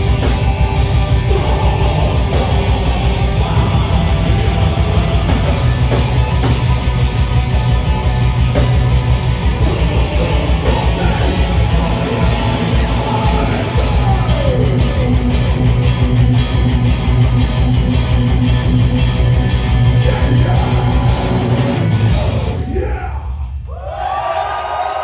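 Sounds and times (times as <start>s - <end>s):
metal band playing live: 0.0s - 23.6s
crowd cheering: 20.1s - 25.0s.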